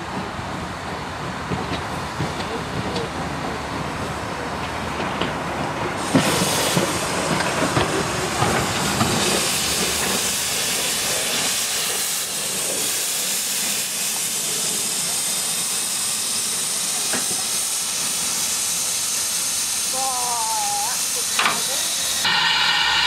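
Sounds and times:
steam hissing from locomotive: 5.9 - 23.0.

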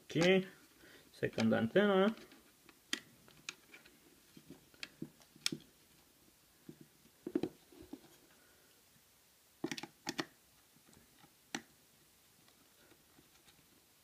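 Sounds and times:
small plastic clicks and knocks: 9.6 - 10.4.

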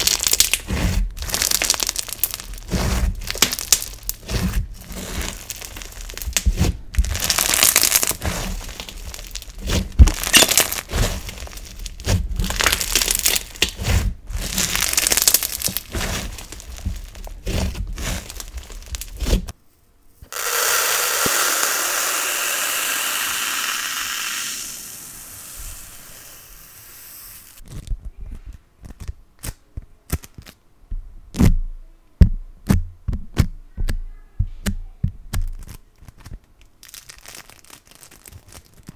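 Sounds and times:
slime stretching crackling hiss: 0.0 - 19.5, 20.3 - 27.6
slime crackling and popping: 0.0 - 19.6, 20.4 - 26.5, 35.3 - 38.9.

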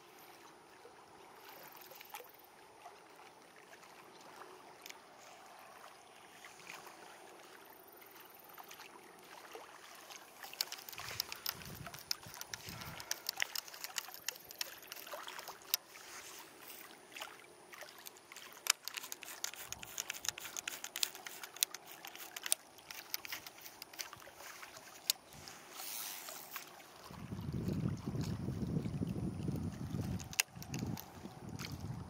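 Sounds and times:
waves lapping against boat hull: 0.1 - 32.0
sharp little splashes: 8.6 - 29.0.

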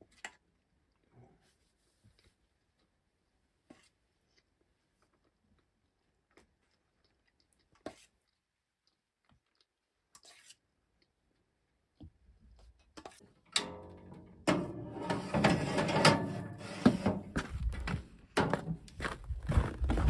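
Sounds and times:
pan scraping on wire rack: 13.6 - 17.4.

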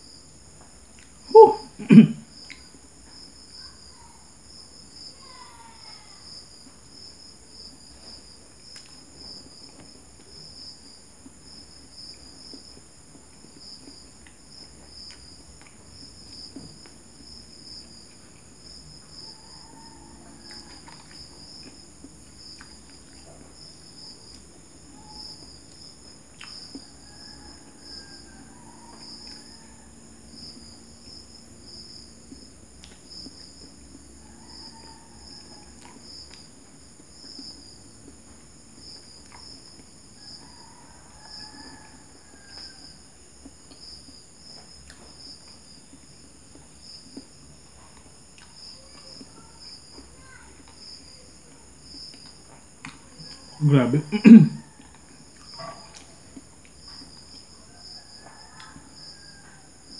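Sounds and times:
crickets trilling: 0.0 - 59.9
person chewing food: 8.6 - 19.1, 20.4 - 27.0, 35.8 - 40.1, 41.0 - 51.2, 54.8 - 57.6.

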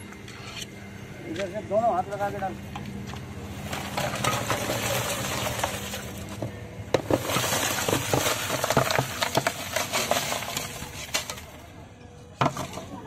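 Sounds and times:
crushed ice clattering into pot: 3.5 - 11.7, 12.4 - 13.0.

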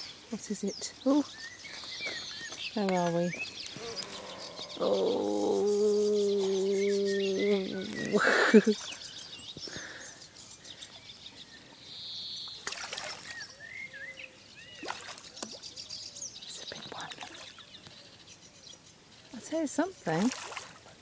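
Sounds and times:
small birds chirping: 0.0 - 21.0
fish splashing at surface: 12.6 - 13.4, 14.8 - 15.6, 20.1 - 20.8.

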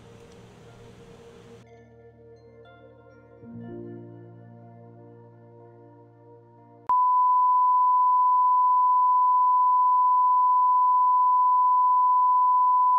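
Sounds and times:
quiet ambient music: 0.0 - 6.9.

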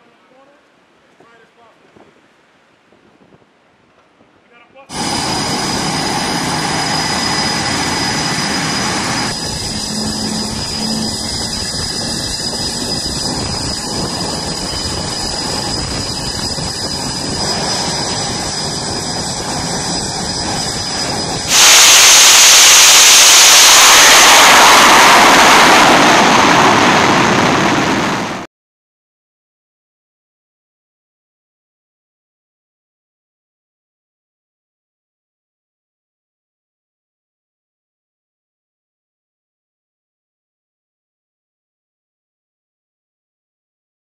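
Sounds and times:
jet engines roaring: 4.9 - 28.4
jet blast: 4.9 - 28.5.

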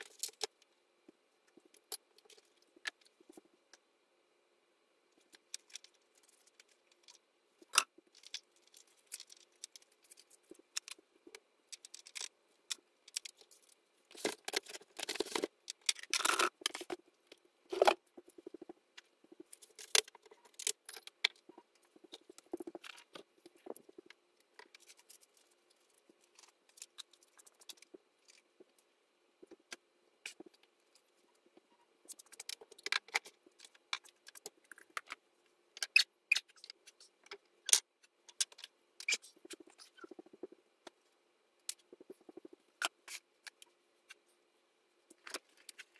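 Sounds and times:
small objects clicking and rattling: 0.0 - 0.6, 5.2 - 28.8.

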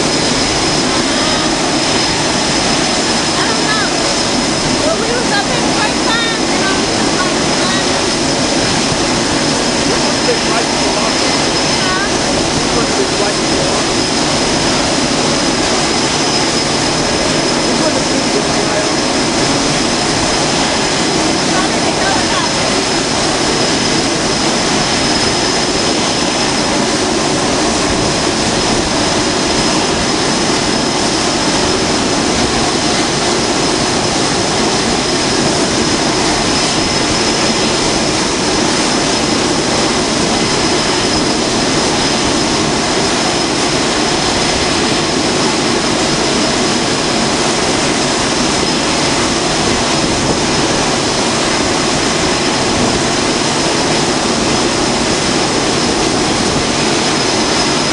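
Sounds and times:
high engine whine: 0.0 - 57.9
jet engines running: 0.0 - 57.9.

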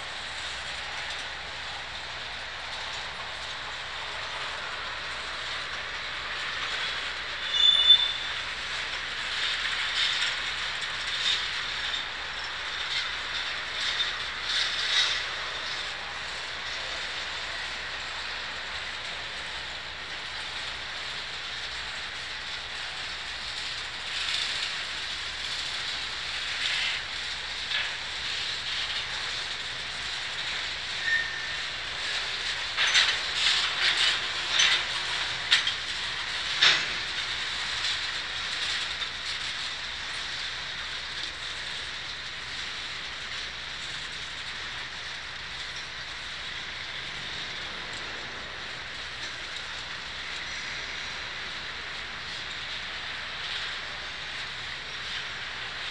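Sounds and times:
train wheels rolling on rail: 0.0 - 55.9
high wheel squeals: 7.4 - 8.5, 31.0 - 31.6
clicks over rail joints: 32.6 - 39.5.

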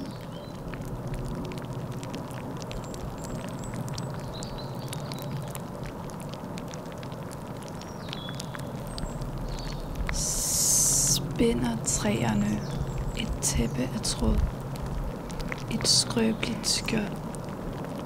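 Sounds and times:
crackling clicks and ticks: 0.0 - 18.0
steady low hum: 8.9 - 18.0.

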